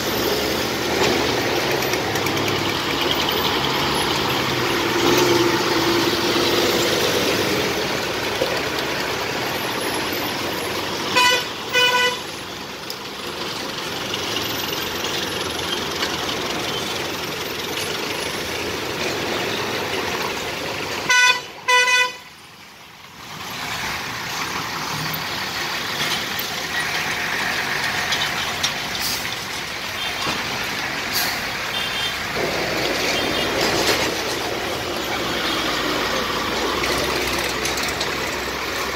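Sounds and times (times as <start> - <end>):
heavy traffic rumble: 0.0 - 38.9
vehicle horns tooting: 11.0 - 12.4, 21.0 - 22.3, 31.7 - 32.3.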